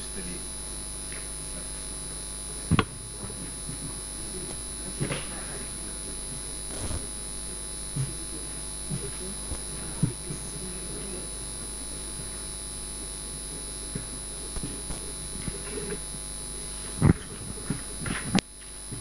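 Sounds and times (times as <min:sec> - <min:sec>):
electrical hum: 0:00.0 - 0:19.0
microphone handling knocks: 0:02.7 - 0:05.5, 0:06.7 - 0:07.2.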